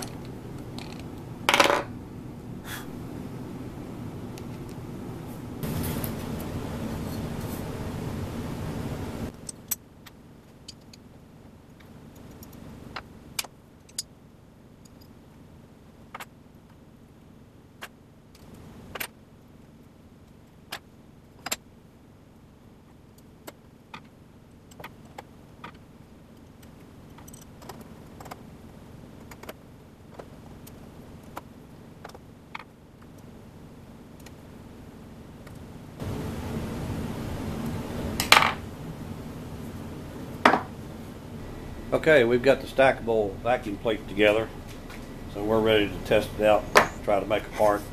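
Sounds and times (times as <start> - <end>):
steady noise: 0.0 - 9.4, 35.6 - 47.9.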